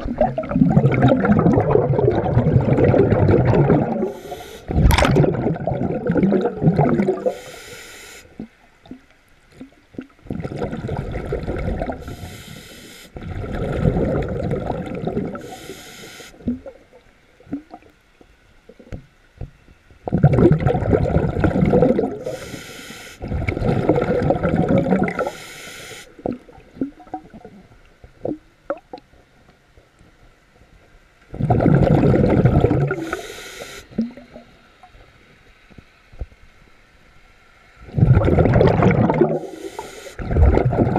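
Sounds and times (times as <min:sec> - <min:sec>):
exhaled bubbles gurgling: 0:00.0 - 0:17.9, 0:20.0 - 0:25.5, 0:26.1 - 0:29.0, 0:31.3 - 0:34.6, 0:37.8 - 0:40.9
regulator hiss: 0:04.0 - 0:04.7, 0:07.2 - 0:08.4, 0:12.0 - 0:13.2, 0:15.4 - 0:16.4, 0:22.2 - 0:23.2, 0:25.2 - 0:26.2, 0:32.9 - 0:34.0, 0:39.4 - 0:40.2.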